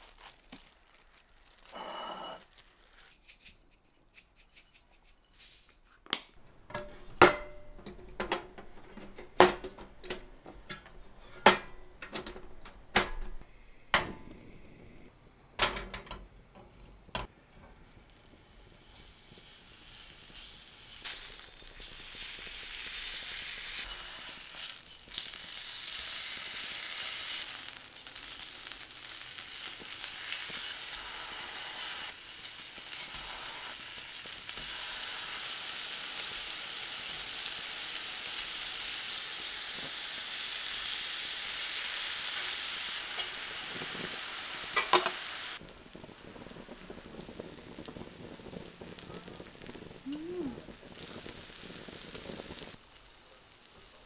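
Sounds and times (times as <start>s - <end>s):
food sizzling in frying pan: 0.0s - 3.3s, 17.2s - 54.0s
kitchen utensils knocking: 6.7s - 13.4s.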